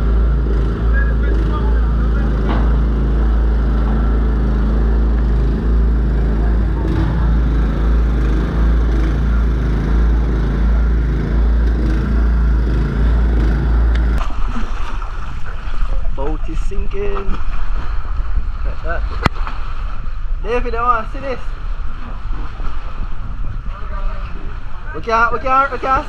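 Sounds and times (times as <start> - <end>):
petrol water pump running: 0.0 - 15.6.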